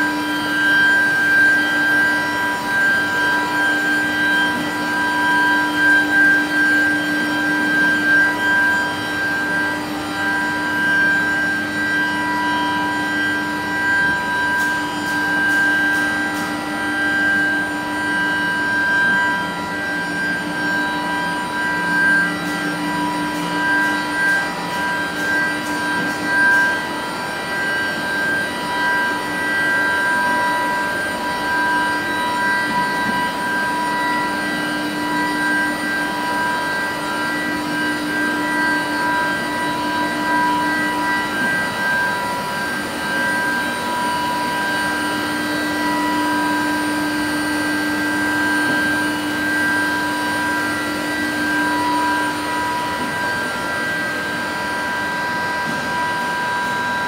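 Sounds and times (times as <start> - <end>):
constant machine noise: 0.0 - 57.0
high-pitched machine whine: 0.0 - 57.0.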